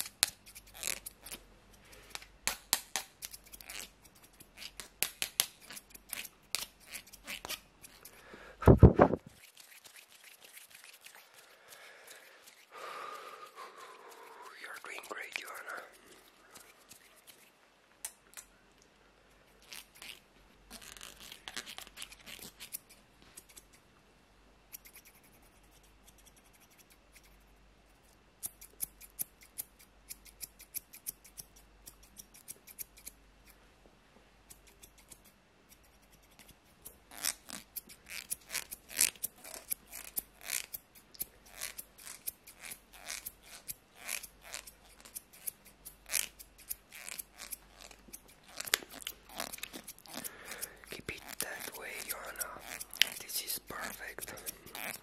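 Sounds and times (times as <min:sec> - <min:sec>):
scissors snipping: 0:02.1 - 0:08.2, 0:14.2 - 0:18.5, 0:28.4 - 0:33.6, 0:34.5 - 0:55.0.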